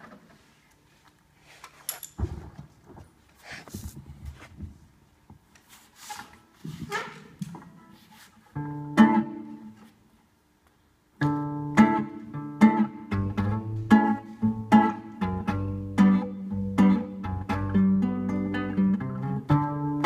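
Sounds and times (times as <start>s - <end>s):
fingerpicked acoustic guitar: 7.7s - 9.9s, 11.2s - 20.0s
acoustic guitar chord ringing: 11.2s - 20.0s.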